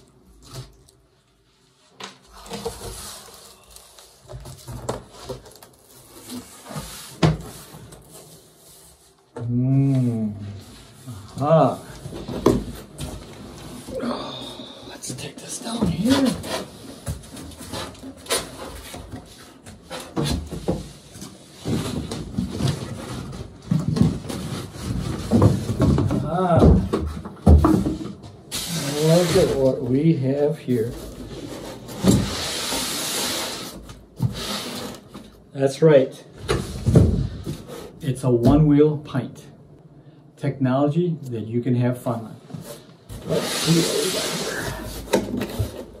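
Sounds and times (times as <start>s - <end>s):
cardboard flaps rustling and scraping: 1.6s - 9.2s, 15.1s - 29.9s, 30.7s - 35.4s, 42.5s - 46.0s.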